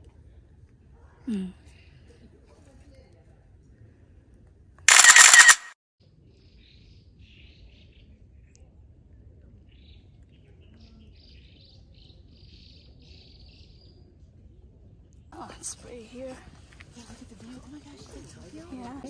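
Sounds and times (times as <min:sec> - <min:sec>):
low steady background noise: 0:06.0 - 0:19.0.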